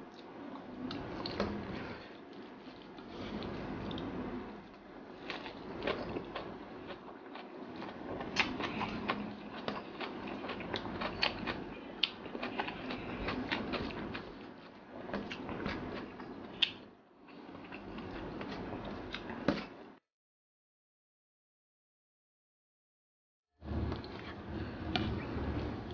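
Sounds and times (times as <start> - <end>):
close chewing of rice: 5.2 - 16.8.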